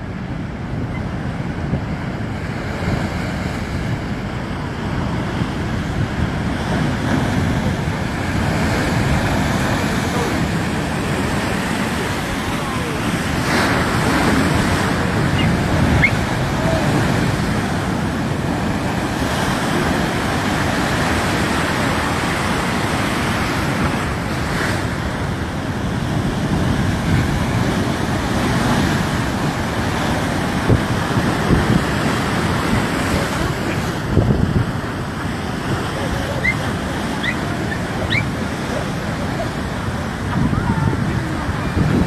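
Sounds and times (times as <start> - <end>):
water rushing: 0.0 - 42.0.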